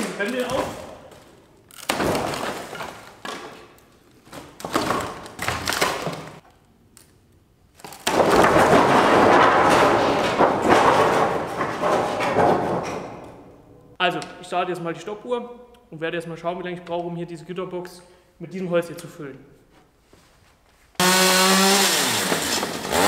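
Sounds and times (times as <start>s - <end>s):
wooden boards scraping and knocking: 8.0s - 13.2s.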